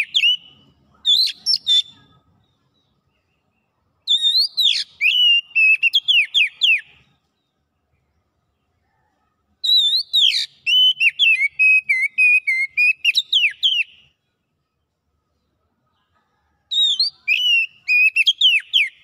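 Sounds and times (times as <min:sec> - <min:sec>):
bird singing whistled notes: 0:00.0 - 0:07.5, 0:09.6 - 0:14.2, 0:16.7 - 0:19.0.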